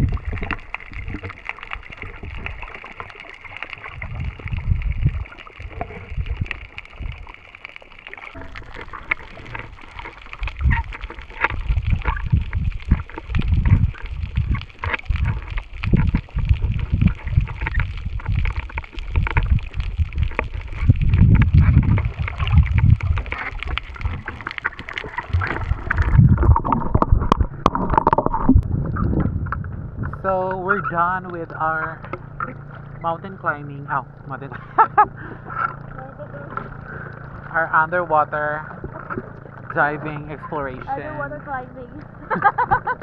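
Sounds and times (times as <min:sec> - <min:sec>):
clicks and crackles: 0:00.0 - 0:33.1, 0:34.1 - 0:37.6
underwater water sloshing: 0:00.0 - 0:43.0.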